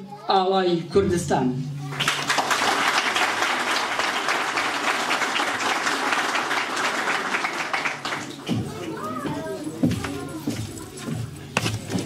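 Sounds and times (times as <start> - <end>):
audience applauding: 1.9 - 9.1.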